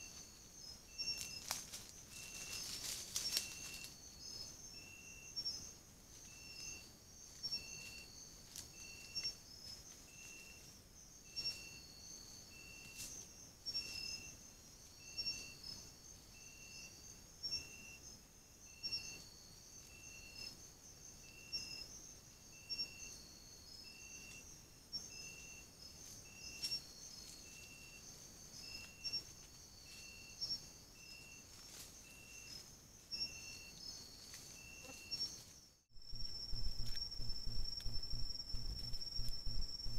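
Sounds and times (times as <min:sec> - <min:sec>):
insect chirps: 0:00.0 - 0:39.9
insects trilling: 0:00.0 - 0:39.9
short low repeating note: 0:36.0 - 0:39.9.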